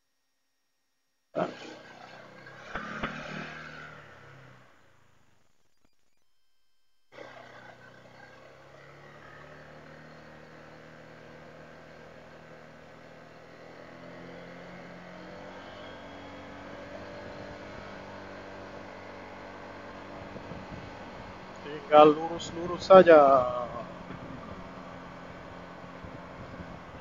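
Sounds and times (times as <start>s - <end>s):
scooter engine running: 1.4s - 5.5s, 7.1s - 27.0s
wind and road noise: 1.5s - 5.1s, 7.2s - 27.0s.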